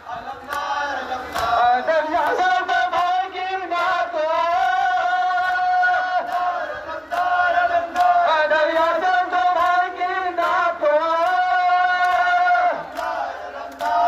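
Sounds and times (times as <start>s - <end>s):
lament chanted through loudspeakers: 0.0s - 14.0s.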